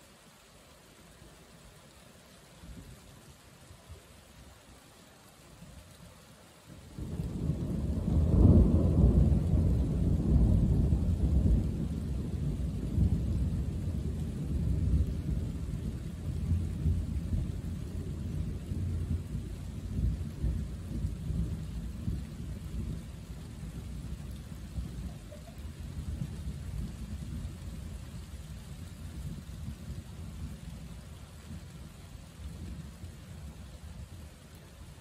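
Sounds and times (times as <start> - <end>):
thunder rumbling: 6.9 - 34.1.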